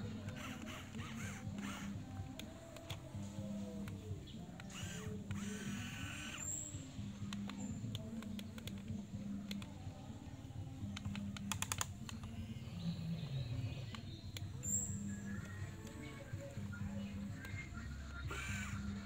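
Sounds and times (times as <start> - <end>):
small electric motors whirring: 0.0 - 3.9, 4.6 - 7.6, 18.2 - 19.0
plastic gear clicks: 0.0 - 9.8, 10.8 - 12.4.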